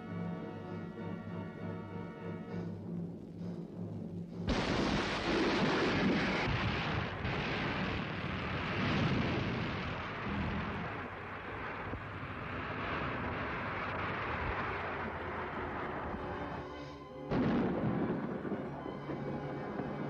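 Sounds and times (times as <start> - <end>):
bomb blast: 4.5 - 15.6, 17.3 - 19.1
long rumbling roar: 4.5 - 16.6.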